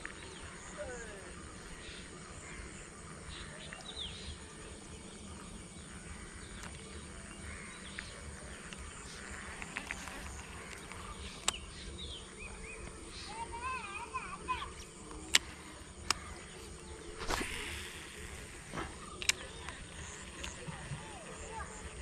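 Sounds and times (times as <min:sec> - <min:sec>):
sharp clicks: 0:07.9 - 0:11.6, 0:14.8 - 0:20.7.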